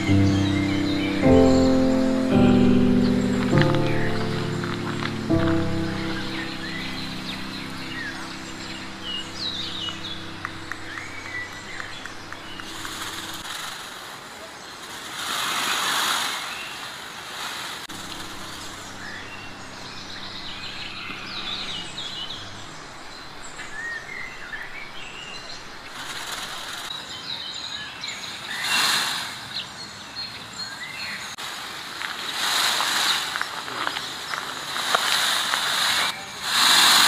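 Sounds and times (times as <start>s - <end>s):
rushing noise: 0.0s - 14.0s, 17.9s - 26.9s
birds chirping: 0.0s - 15.0s, 17.9s - 31.4s
outdoor background hiss: 0.0s - 37.0s.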